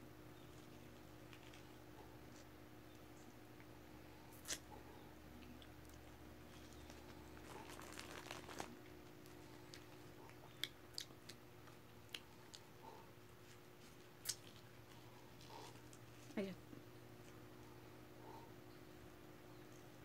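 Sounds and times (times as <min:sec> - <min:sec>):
faint steady hum: 0:00.0 - 0:20.0
faint chewing: 0:00.4 - 0:20.0
plastic wrapper crinkling: 0:06.5 - 0:10.0.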